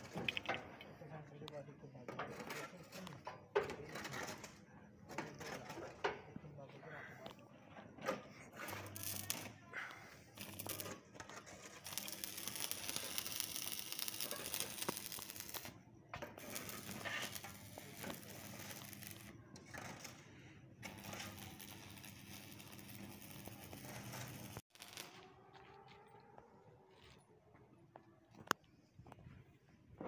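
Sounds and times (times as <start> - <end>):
welding arc crackling and hissing: 8.6 - 9.6, 10.3 - 19.3, 20.8 - 25.2.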